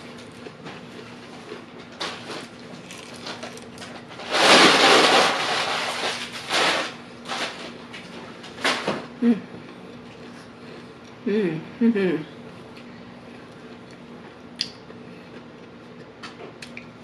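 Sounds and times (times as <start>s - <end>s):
chewing: 0.0s - 4.0s, 12.8s - 16.9s
crunchy bite: 2.1s - 5.8s.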